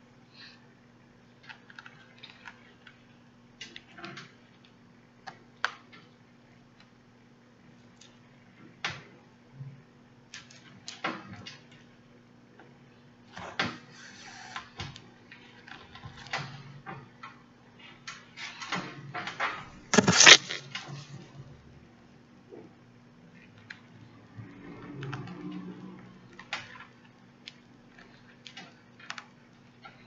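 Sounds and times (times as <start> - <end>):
rustling and scraping while sewing: 20.0 - 21.2.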